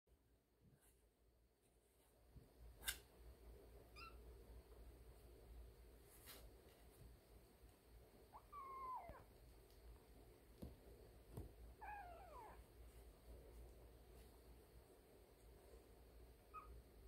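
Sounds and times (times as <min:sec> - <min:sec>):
kitten mewing: 0:08.4 - 0:09.3, 0:11.8 - 0:12.6.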